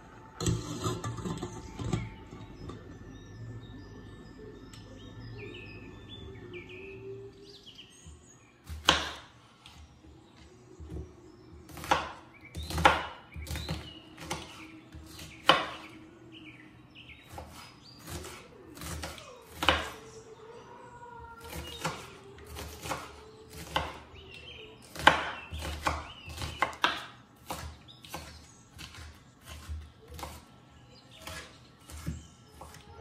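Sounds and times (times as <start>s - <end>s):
knife chopping on cutting board: 8.7s - 9.3s, 11.7s - 15.9s, 24.8s - 30.4s, 31.2s - 32.8s.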